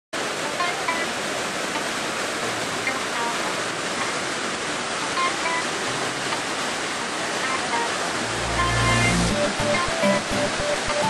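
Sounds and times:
waterfall roaring: 0.2s - 11.0s.

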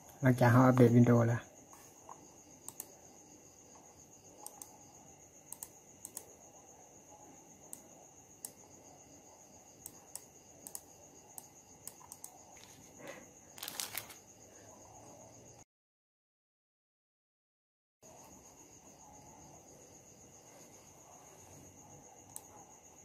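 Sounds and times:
computer mouse clicks: 1.7s - 3.0s, 4.4s - 4.8s, 5.5s - 6.3s, 7.7s - 8.6s, 9.8s - 12.8s, 22.3s - 22.6s.

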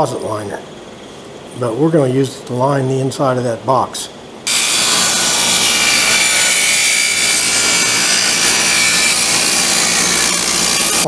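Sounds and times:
table saw cutting wood: 4.5s - 11.0s.

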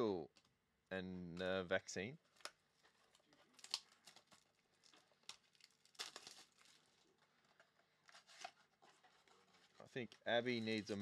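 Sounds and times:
soft crinkles: 2.2s - 11.0s
trading cards rustling: 2.3s - 11.0s.

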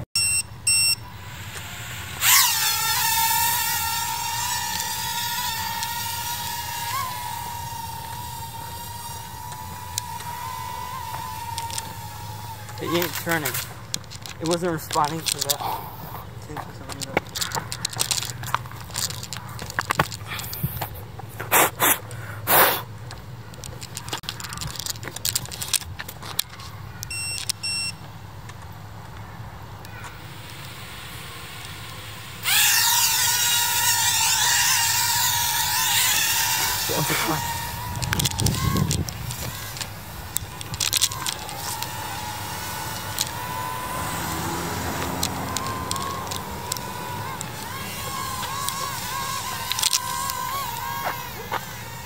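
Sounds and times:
quadcopter propellers whining: 0.2s - 22.8s, 29.8s - 52.0s
camera handling clicks and scrapes: 12.7s - 16.2s, 16.8s - 22.0s, 37.9s - 43.5s, 45.2s - 51.7s
loud rushes of noise: 36.6s - 50.1s.

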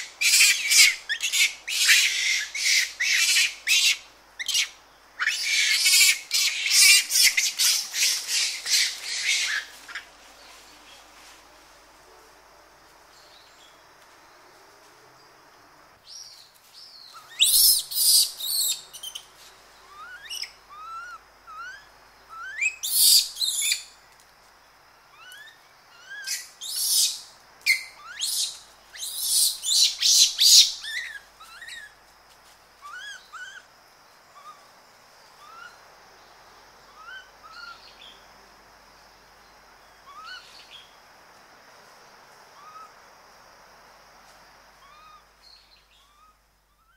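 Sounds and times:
monkeys screaming: 0.2s - 9.7s.

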